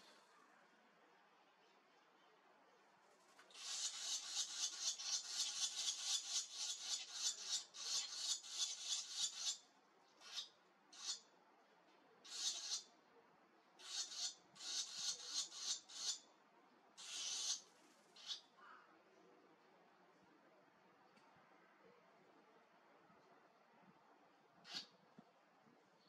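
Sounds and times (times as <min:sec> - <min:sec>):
nestlings begging calls: 0:03.5 - 0:09.6, 0:10.2 - 0:11.3, 0:12.2 - 0:12.9, 0:13.8 - 0:16.3, 0:17.0 - 0:18.4, 0:24.6 - 0:24.9.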